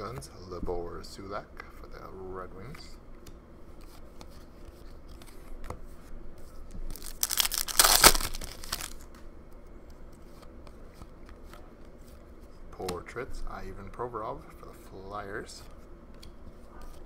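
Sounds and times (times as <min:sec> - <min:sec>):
foil wrapper tearing and crinkling: 0:06.9 - 0:09.1.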